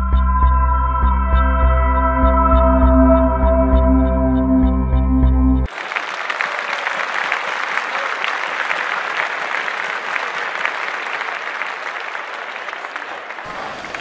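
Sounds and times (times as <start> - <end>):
music: 0.0 - 5.7
crowd applause: 5.7 - 14.0.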